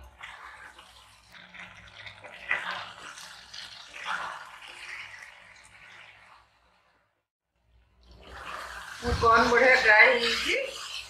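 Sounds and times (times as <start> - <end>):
spoon stirring in a pan: 0.0 - 7.0, 7.9 - 11.0
sauce sizzling in a pan: 0.1 - 7.0, 8.2 - 11.0.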